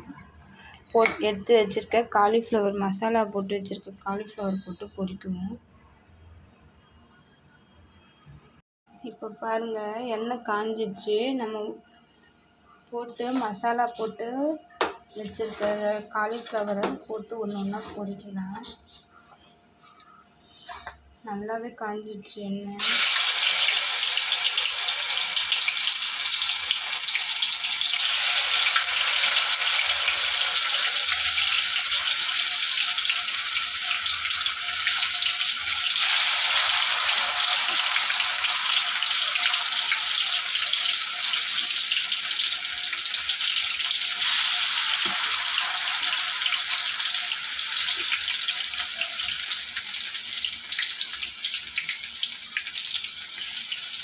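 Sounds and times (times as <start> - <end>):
vegetables deep-frying in oil: 22.8 - 54.0.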